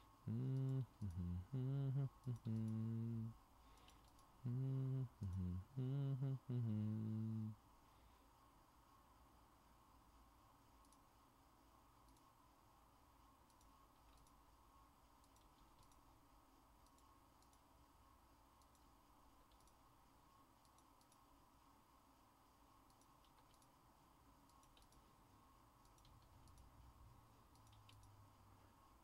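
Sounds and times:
steady low hum: 0.0s - 29.0s
mouse and keyboard clicks: 13.5s - 14.4s, 15.2s - 16.0s, 22.9s - 23.8s, 24.5s - 25.0s, 25.9s - 26.7s, 27.5s - 28.2s.

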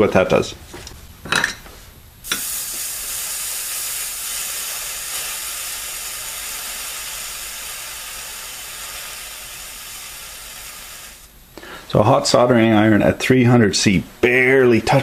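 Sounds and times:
steam hissing from soldering iron: 2.2s - 11.3s.

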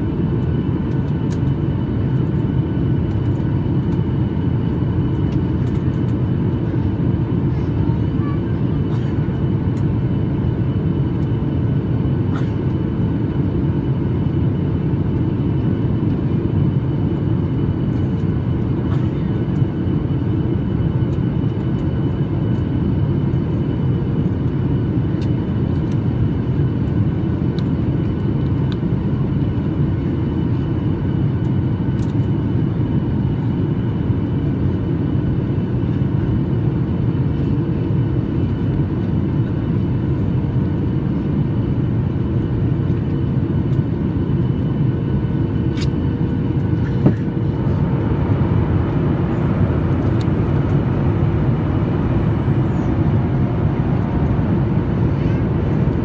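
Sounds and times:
aircraft cabin rumble: 0.0s - 56.0s
faint steady whine: 46.4s - 56.0s.

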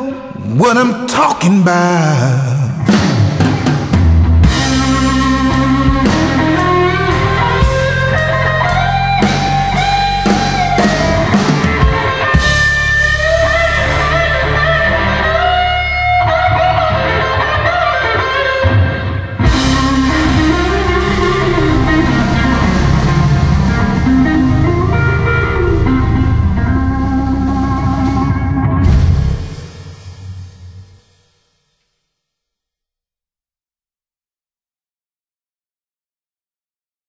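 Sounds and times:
drums: 0.0s - 32.0s
electric guitar lead: 1.8s - 30.8s
bass guitar: 2.0s - 30.9s
cymbals: 19.4s - 32.0s.

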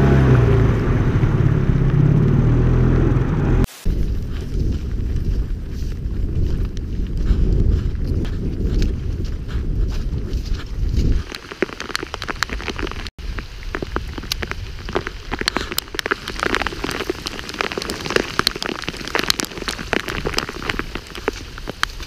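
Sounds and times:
low rumble: 0.0s - 11.3s
rain drops spattering: 11.2s - 22.0s.

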